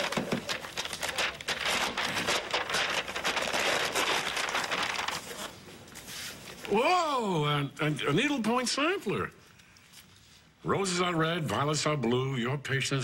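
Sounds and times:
wrapping paper tearing and crinkling: 0:00.0 - 0:06.8.

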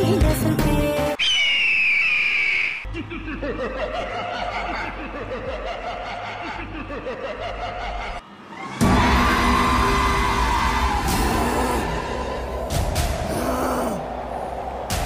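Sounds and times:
villainous laughter: 0:02.9 - 0:08.2.

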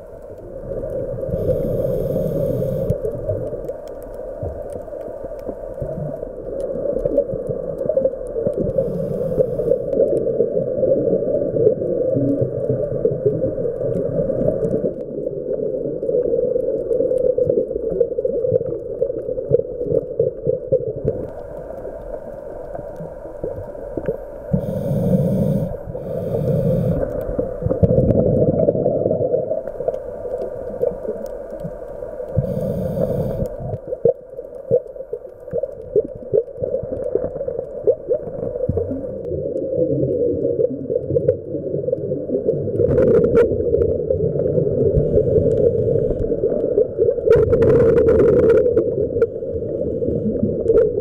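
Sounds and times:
low underwater rumble: 0:00.0 - 0:51.0
scuba regulator breathing: 0:01.2 - 0:03.2, 0:08.6 - 0:10.0, 0:24.1 - 0:27.6, 0:32.3 - 0:33.7, 0:45.0 - 0:46.5, 0:49.2 - 0:50.6
bubbles: 0:05.6 - 0:21.4, 0:23.0 - 0:51.0.

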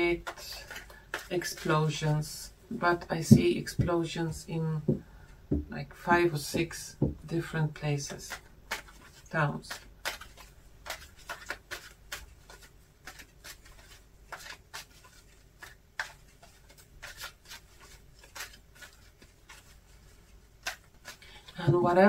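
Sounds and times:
cards being shuffled: 0:00.2 - 0:02.1, 0:08.0 - 0:22.0.

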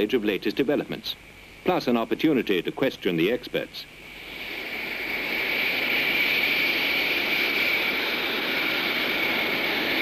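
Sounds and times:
jet engine whine: 0:00.0 - 0:10.0.

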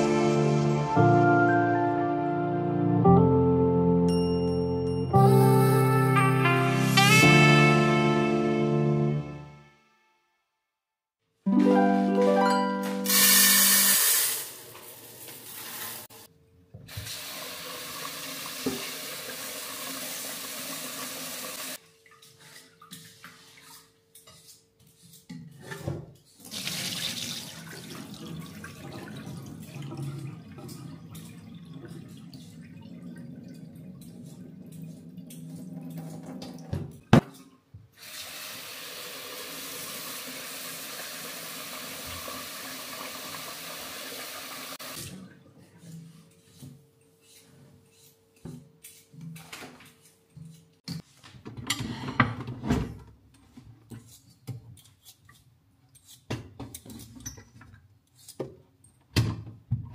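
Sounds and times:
tap water splashing into steel sink: 0:17.9 - 0:19.2.

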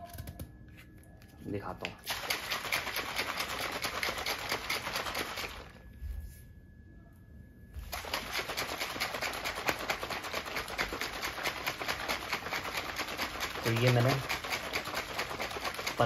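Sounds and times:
shaker bottle clattering: 0:07.9 - 0:16.0.

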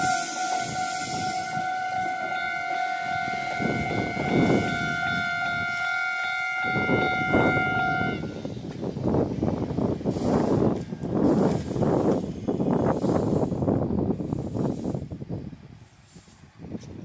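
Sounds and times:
level crossing alarm ringing: 0:00.0 - 0:08.2
electric train rumbling: 0:00.0 - 0:17.0.

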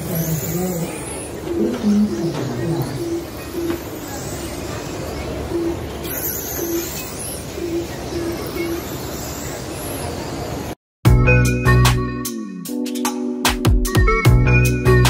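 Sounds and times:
short beeps: 0:05.1 - 0:09.0.

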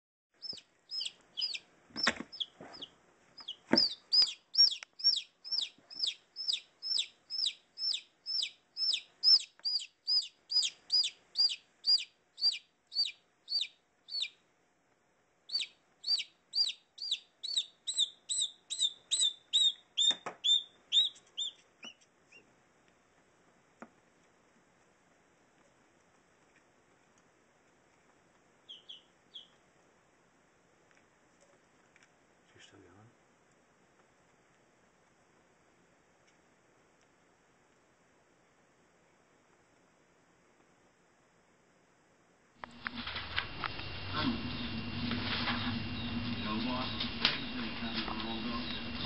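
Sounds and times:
chick peeping in distress: 0:00.4 - 0:14.3, 0:15.5 - 0:22.0.

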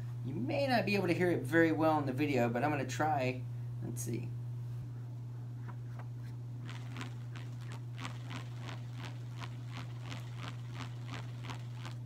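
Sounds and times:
rubber band buzzing in pulses: 0:05.6 - 0:12.0.

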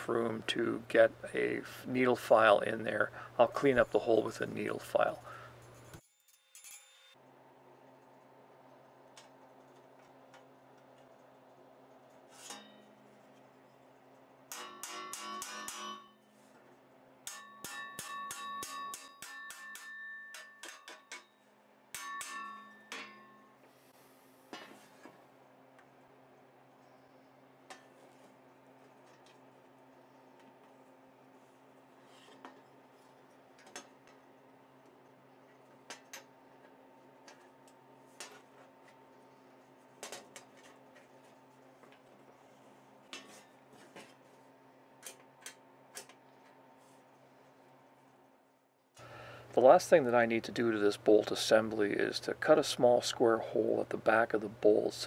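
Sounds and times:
faint steady hum: 0:00.0 - 0:06.1, 0:06.8 - 0:55.0
small hammer tapping on steel: 0:14.5 - 0:16.1, 0:17.2 - 0:23.3.

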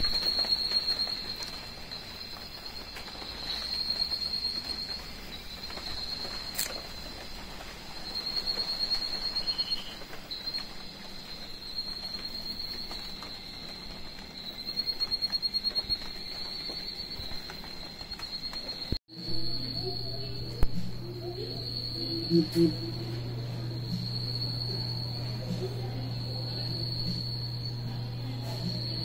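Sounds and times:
insects whining and pulsing: 0:00.0 - 0:29.0.

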